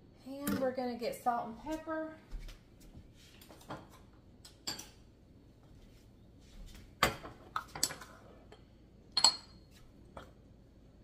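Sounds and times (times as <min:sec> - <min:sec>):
metal spoon clinking ceramic bowl: 0:09.2 - 0:09.6.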